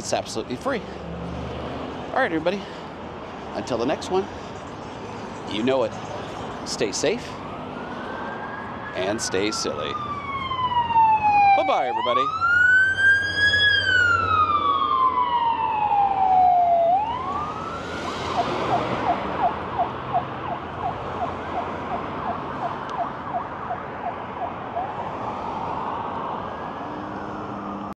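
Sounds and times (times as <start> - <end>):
emergency vehicle siren: 6.3 - 28.0.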